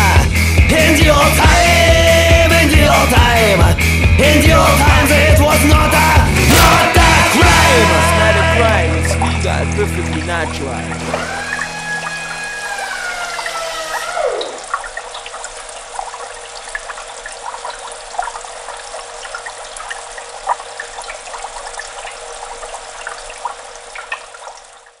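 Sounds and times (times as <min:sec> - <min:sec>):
aquarium water trickling and bubbling: 0:07.3 - 0:25.0.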